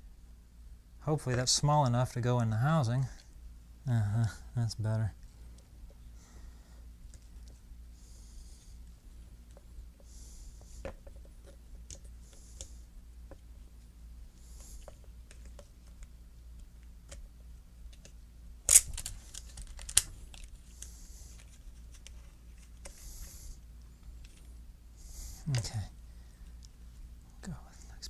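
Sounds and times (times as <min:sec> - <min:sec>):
plastic parts clicking and tapping: 0:17.9 - 0:20.5.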